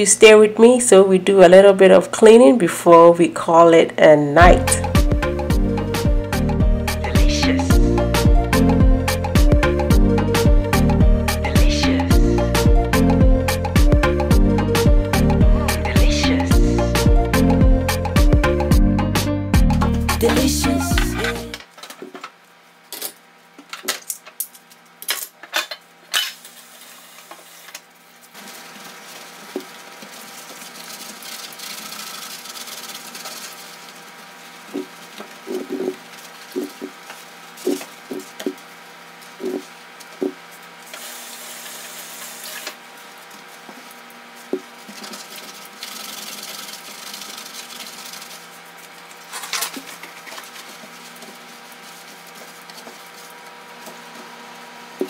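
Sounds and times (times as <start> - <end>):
sponge scrubbing a stovetop: 28.2 - 39.7, 43.4 - 54.4.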